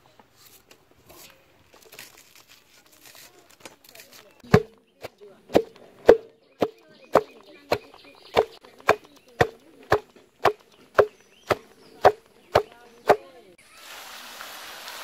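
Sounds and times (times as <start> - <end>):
rhythmic chopping with metallic ring: 4.5 - 13.3.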